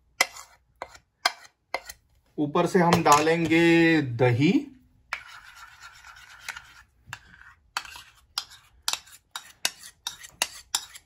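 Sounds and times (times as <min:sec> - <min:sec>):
spoon scraping yogurt from bowl: 0:00.0 - 0:02.1, 0:05.1 - 0:11.0.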